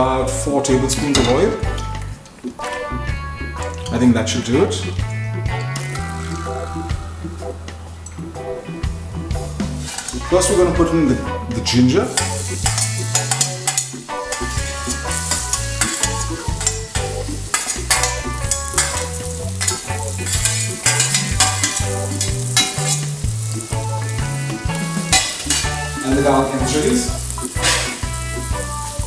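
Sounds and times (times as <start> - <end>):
background music with bass: 0.0 - 29.0
food sizzling in hot oil: 5.0 - 11.0, 11.7 - 29.0
spoon scraping metal pot: 9.8 - 10.3, 12.1 - 23.6, 24.7 - 26.2, 27.4 - 28.2.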